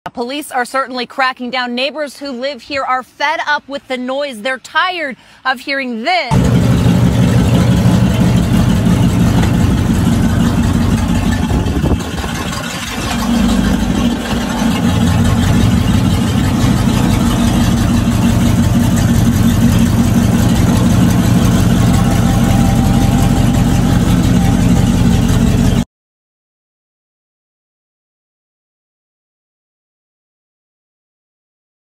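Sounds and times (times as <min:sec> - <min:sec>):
loud engine idling: 0:06.3 - 0:25.8.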